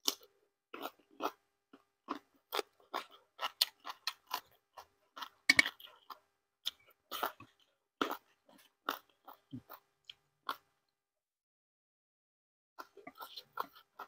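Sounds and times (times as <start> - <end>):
person chewing and crunching food: 0.0 - 10.9, 12.8 - 14.0.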